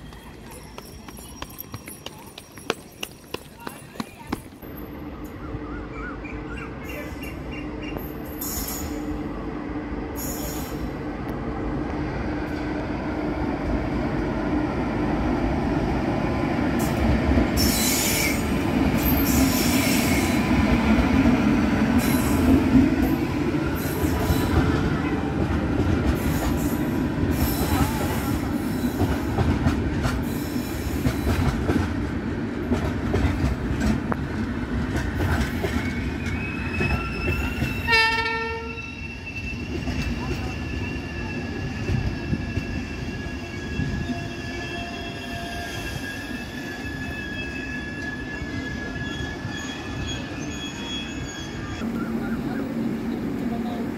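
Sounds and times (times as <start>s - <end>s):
train rumble passing: 4.2s - 53.9s
high wheel squeals: 17.6s - 20.4s, 35.6s - 51.8s.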